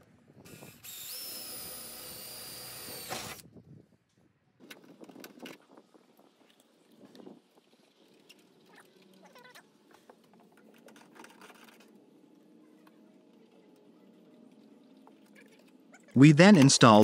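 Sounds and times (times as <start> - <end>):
electric drill whining through metal: 0.4 - 3.4.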